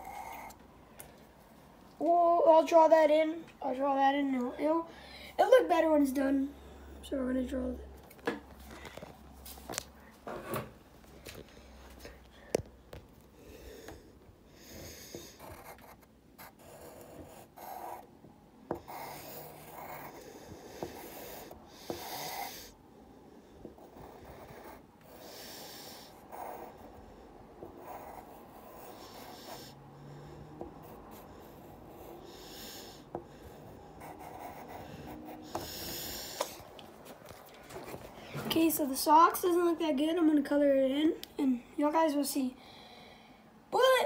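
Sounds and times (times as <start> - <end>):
pencil scratching on paper: 0.0 - 0.6, 14.6 - 18.1, 18.7 - 22.7, 23.5 - 36.6.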